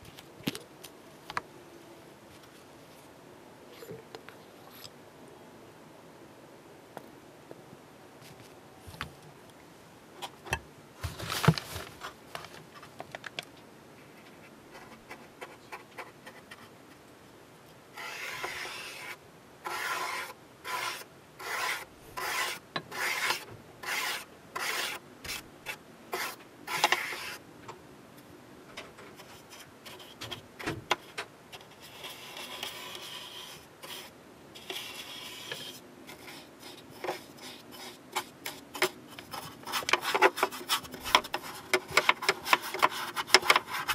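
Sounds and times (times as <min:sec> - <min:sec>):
paintbrush scrubbing plastic: 0:18.0 - 0:27.4, 0:31.0 - 0:43.9.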